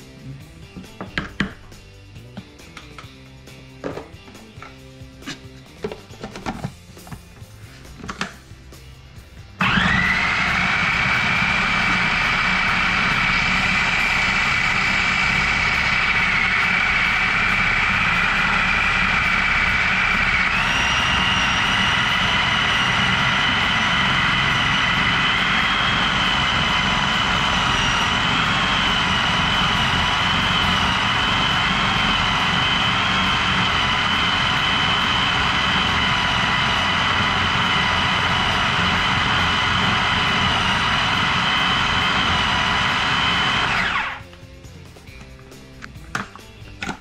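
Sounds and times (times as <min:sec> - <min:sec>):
food processor motor whine: 0:09.6 - 0:44.3.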